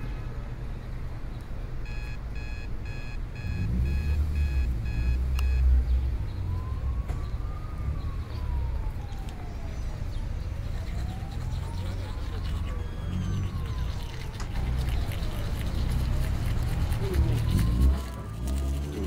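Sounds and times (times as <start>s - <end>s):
electronic beeps: 1.8s - 5.7s, 12.7s - 13.6s.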